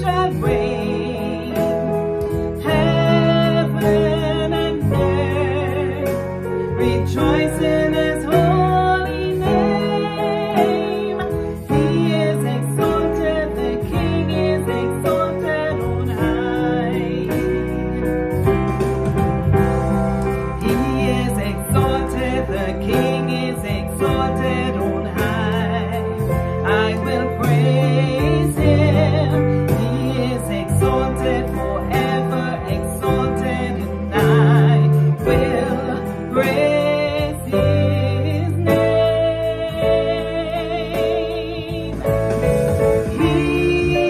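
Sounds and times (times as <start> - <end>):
woman singing gospel song: 0.0 - 18.5, 20.4 - 44.0
sustained low instrumental chords: 17.4 - 22.8.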